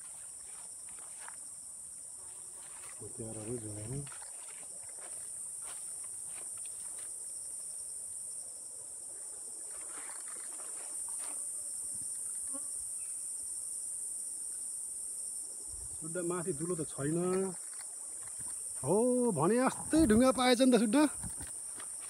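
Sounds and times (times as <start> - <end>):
insects chorus: 0.0 - 22.0.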